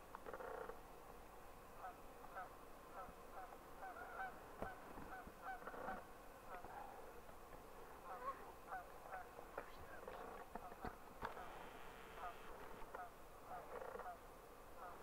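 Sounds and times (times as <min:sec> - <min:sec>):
geese honking: 0:01.8 - 0:06.7, 0:10.6 - 0:14.2, 0:14.8 - 0:15.0.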